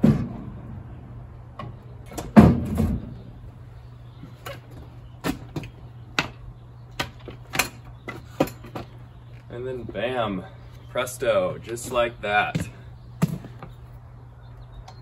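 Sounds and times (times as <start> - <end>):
wooden dolly knocking and thudding: 7.0 - 9.0.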